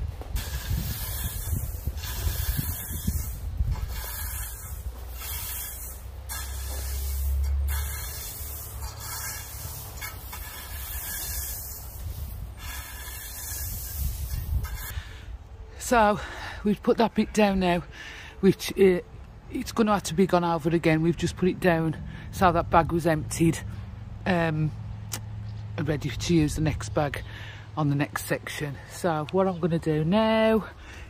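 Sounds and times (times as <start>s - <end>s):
rake scraping gravel: 0.0s - 15.3s.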